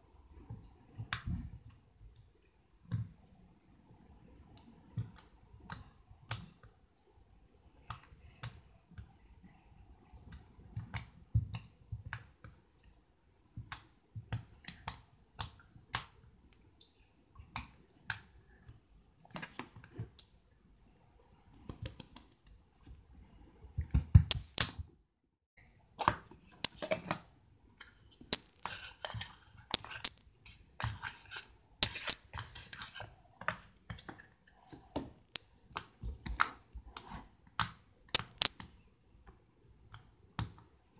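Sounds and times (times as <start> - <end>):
slime clicking and popping: 24.3 - 24.7, 26.7 - 26.9, 28.4 - 28.6, 31.8 - 32.2, 38.2 - 38.5.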